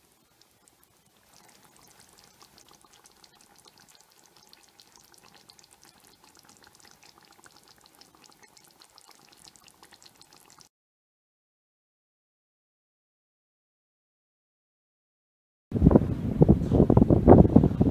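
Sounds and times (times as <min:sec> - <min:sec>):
sauce popping and crackling: 0:00.0 - 0:10.7.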